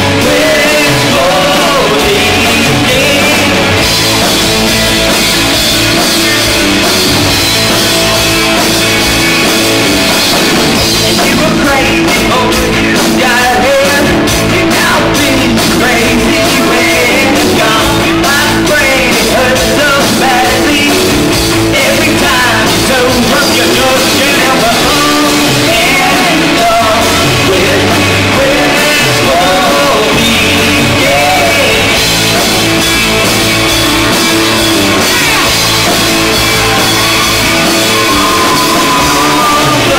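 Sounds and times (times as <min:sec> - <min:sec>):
person singing lead vocal: 0:00.0 - 0:04.2, 0:10.9 - 0:32.5, 0:33.8 - 0:39.9
bass guitar: 0:00.0 - 0:39.9
drum kit: 0:00.0 - 0:39.9
electric guitars: 0:00.0 - 0:39.9.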